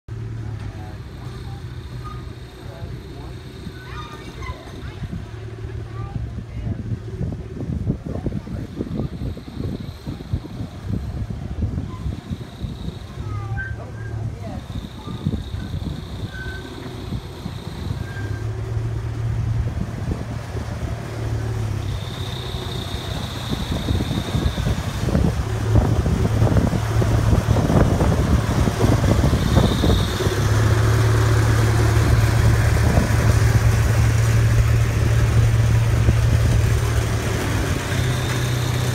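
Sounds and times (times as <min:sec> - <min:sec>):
miniature train engine humming: 0:00.1 - 0:38.9
train clicks and rattles: 0:11.8 - 0:38.9.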